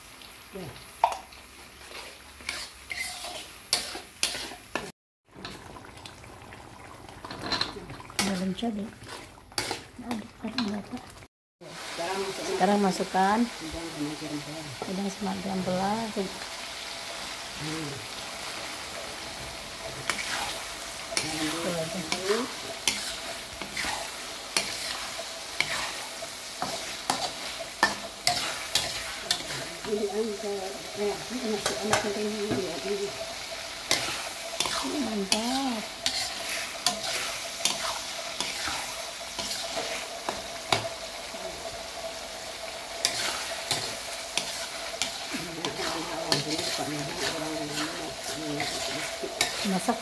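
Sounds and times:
food sizzling in a pan: 0:00.0 - 0:50.0
utensil scraping a pan: 0:01.8 - 0:04.9, 0:19.9 - 0:20.6, 0:21.2 - 0:30.4, 0:33.9 - 0:38.8, 0:39.4 - 0:40.1, 0:43.0 - 0:50.0.

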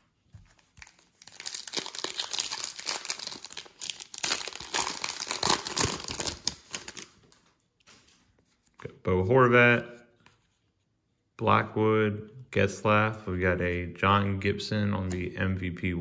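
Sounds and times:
foil wrapper crinkling: 0:00.5 - 0:07.5.

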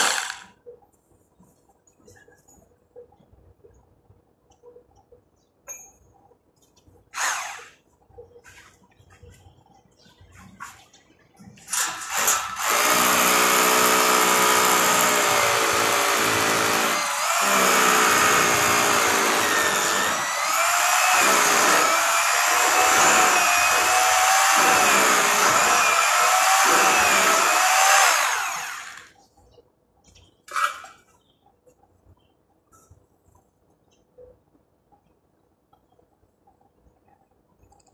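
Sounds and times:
power drill whining under load: 0:00.0 - 0:00.5, 0:11.7 - 0:29.1.

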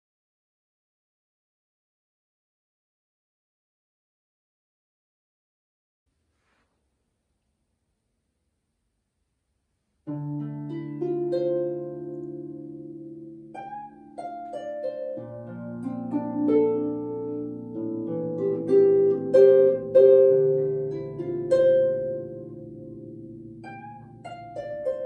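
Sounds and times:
solo harp playing: 0:10.0 - 0:25.0.

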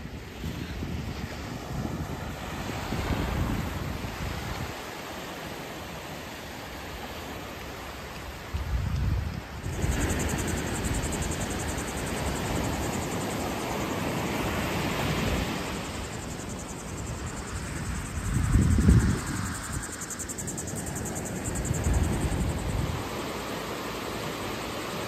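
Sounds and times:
waves breaking on a beach: 0:00.0 - 0:25.0
wind buffeting microphone: 0:00.1 - 0:04.8, 0:08.5 - 0:23.2
high pulsing insect buzz: 0:09.6 - 0:25.0.

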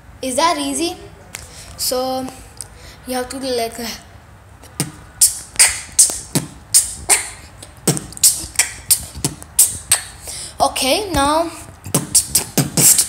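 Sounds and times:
boy beatboxing: 0:04.6 - 0:13.0.

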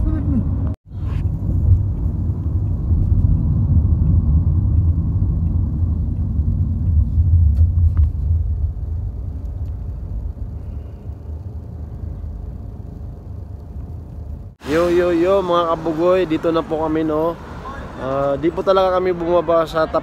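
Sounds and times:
road and engine rumble in car: 0:00.0 - 0:20.0.

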